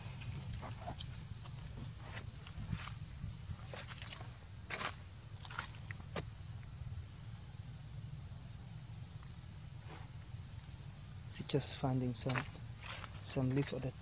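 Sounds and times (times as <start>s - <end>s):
faint rustles: 0.0s - 6.3s, 12.2s - 13.8s
insects droning: 0.0s - 14.0s.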